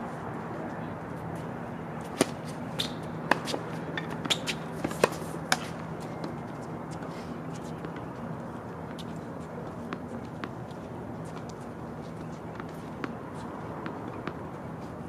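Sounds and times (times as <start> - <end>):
tennis balls hit and bouncing: 2.0 - 8.0, 9.7 - 14.5.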